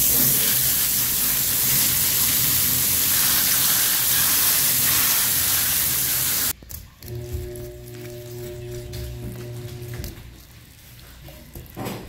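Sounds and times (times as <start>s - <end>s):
water hose spraying: 0.0s - 6.6s.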